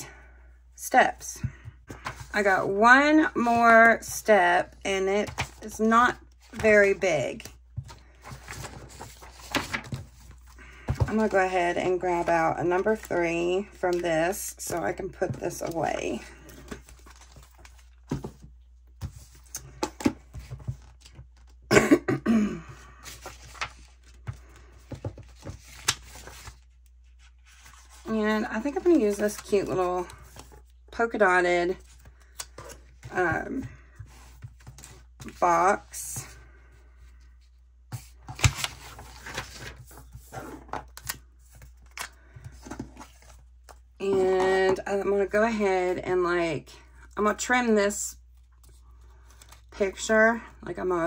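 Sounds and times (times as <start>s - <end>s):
paper rustling: 5.2s - 14.0s, 14.6s - 21.6s, 23.0s - 30.8s, 37.9s - 43.8s
person coughing: 21.7s - 22.8s.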